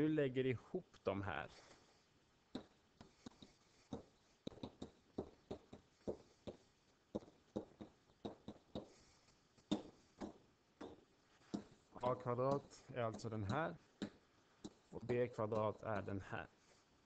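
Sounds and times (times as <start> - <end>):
stylus tapping on writing surface: 2.5 - 9.0, 9.6 - 11.8, 12.5 - 16.1.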